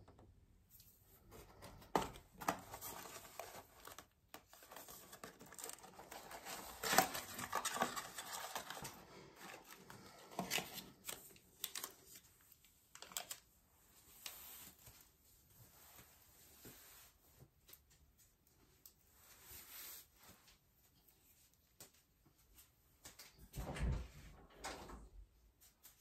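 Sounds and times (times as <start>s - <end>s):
cardboard box rustling and tearing: 2.0s - 9.8s.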